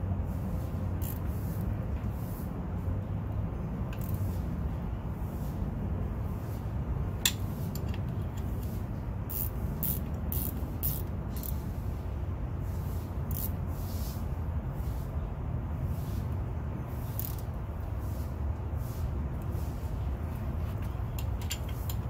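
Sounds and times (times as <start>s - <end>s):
ratchet wrench clicking: 1.0s - 1.2s, 3.9s - 4.2s, 9.3s - 11.6s, 13.3s - 13.6s, 17.1s - 17.6s, 21.2s - 22.0s.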